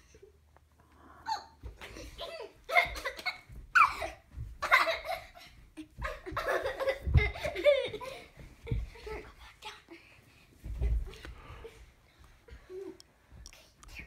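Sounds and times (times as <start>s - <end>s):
young children laughing: 1.4s - 9.4s.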